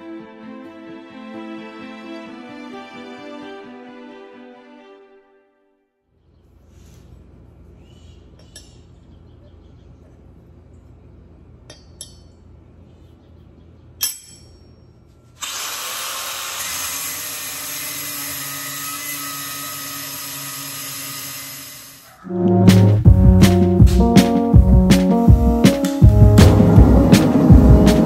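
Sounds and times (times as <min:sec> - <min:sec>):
angle grinder cutting steel: 0:15.4 - 0:22.1.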